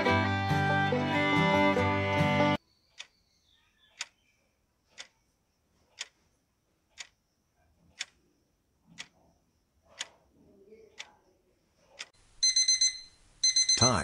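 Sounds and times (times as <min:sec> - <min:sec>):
fiddle music: 0:00.0 - 0:02.6
clock ticking: 0:04.0 - 0:04.2, 0:04.9 - 0:05.3, 0:05.9 - 0:06.2, 0:06.8 - 0:09.3, 0:09.9 - 0:10.3, 0:10.9 - 0:11.2, 0:11.9 - 0:14.0.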